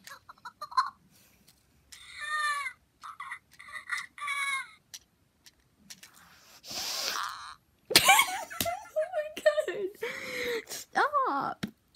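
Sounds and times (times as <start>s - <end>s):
toy squeaky chirps: 2.0s - 4.8s
breathy hiss: 6.2s - 7.5s.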